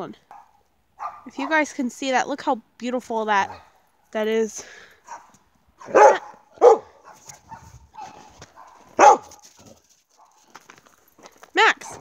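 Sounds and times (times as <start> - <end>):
dog barking: 0.3 - 1.3, 5.0 - 9.4.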